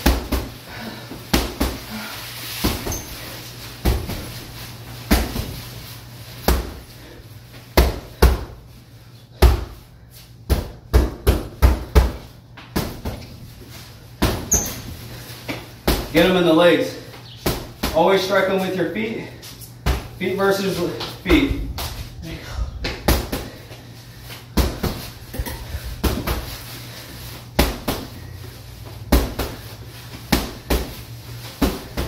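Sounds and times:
punches thudding on heavy bag: 1.3s - 1.9s, 5.1s - 5.6s, 24.5s - 25.1s, 26.0s - 26.6s, 27.5s - 28.2s, 29.1s - 29.6s, 30.3s - 32.0s.

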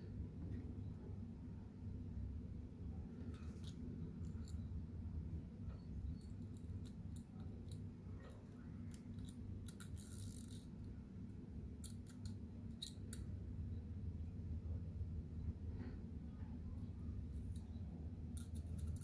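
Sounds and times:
small metal clicks: 5.7s - 11.0s, 11.8s - 13.3s, 17.4s - 19.0s.

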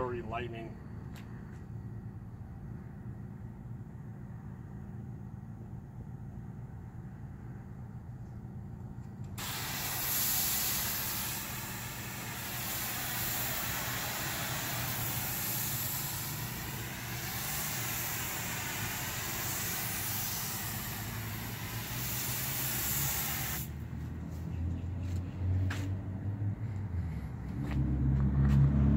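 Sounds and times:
low steady rumble: 0.0s - 23.0s
hose spray hissing on wall: 9.4s - 23.9s.

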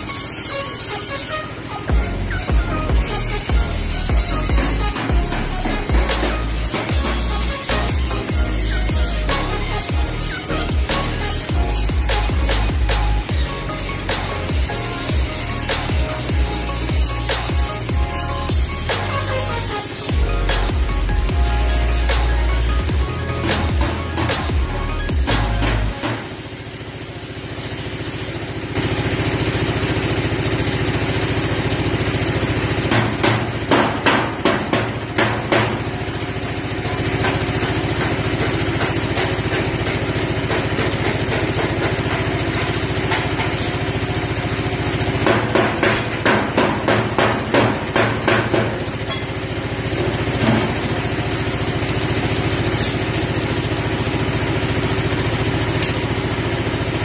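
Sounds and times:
hammer blows on sheet metal: 32.9s - 35.9s, 45.2s - 48.8s.

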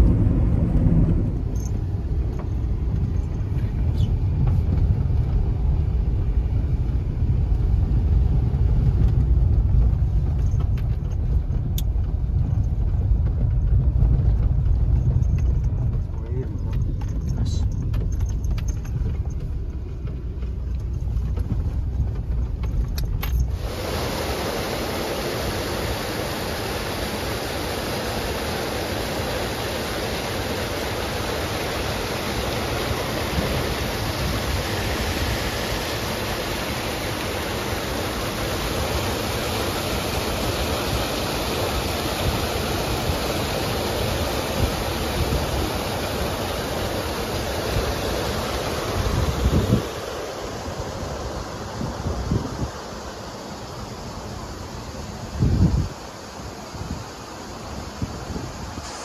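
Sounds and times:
low rumble: 0.0s - 23.8s
rushing water: 0.0s - 59.0s.

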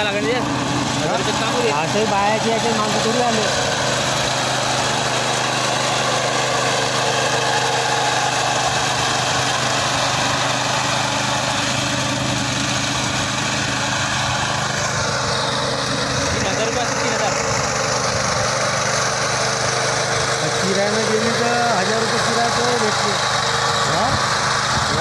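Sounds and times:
cutter bar mowing grass: 0.0s - 25.0s
small petrol engine running: 0.0s - 25.0s.

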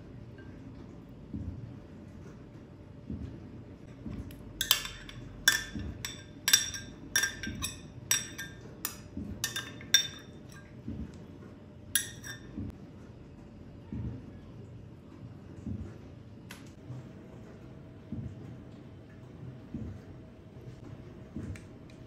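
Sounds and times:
utensil clinking against glass: 4.6s - 10.8s, 12.0s - 12.6s.

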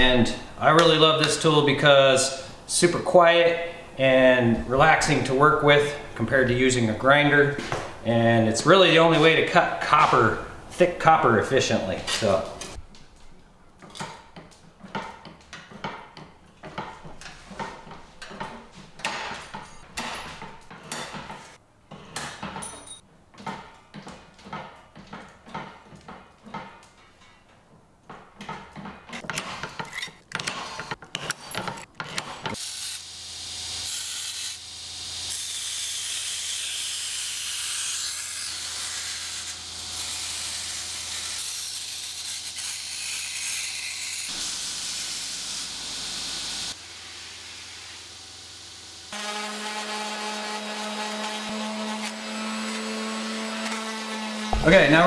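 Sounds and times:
belt grinder hissing and humming: 32.5s - 54.8s.

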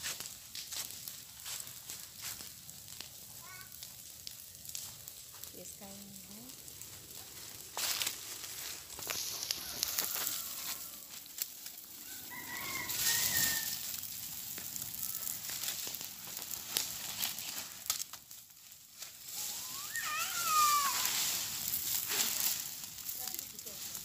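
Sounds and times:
dry leaves burning with crackle: 0.0s - 24.0s
rooster crowing: 9.3s - 11.3s, 12.0s - 14.0s.

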